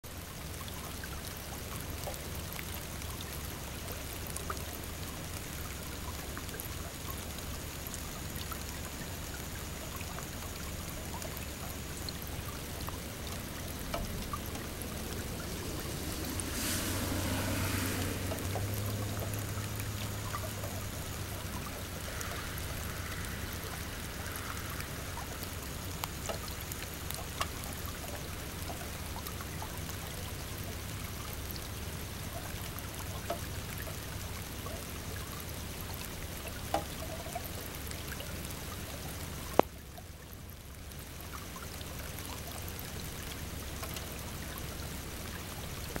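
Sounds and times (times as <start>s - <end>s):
flowing water: 0.0s - 46.0s
faint clicks: 4.2s - 15.9s, 18.3s - 29.9s, 43.2s - 44.7s.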